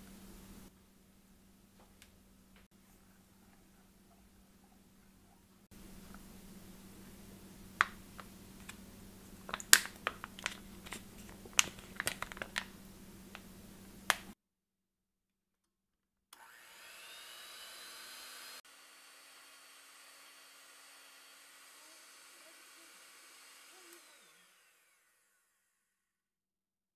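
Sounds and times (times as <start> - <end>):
electric hand mixer whirring: 16.4 - 25.9.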